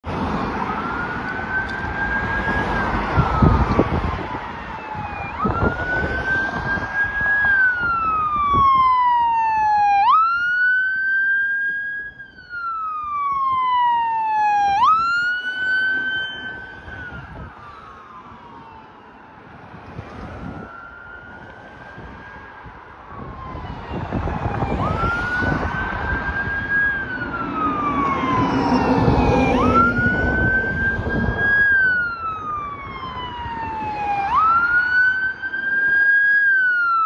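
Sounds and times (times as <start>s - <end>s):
fire engine siren wailing: 0.0s - 37.0s
traffic passing: 0.0s - 37.0s.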